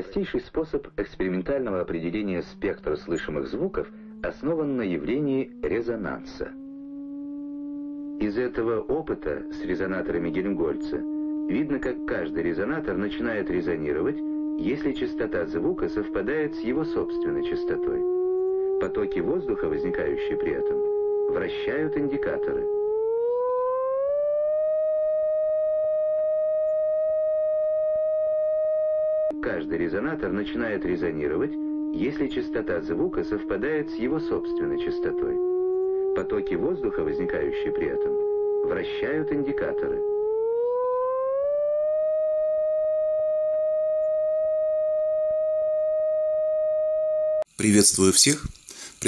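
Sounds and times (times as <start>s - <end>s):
steady electronic test tone: 1.0s - 49.0s
electronic test tone: 1.5s - 22.8s.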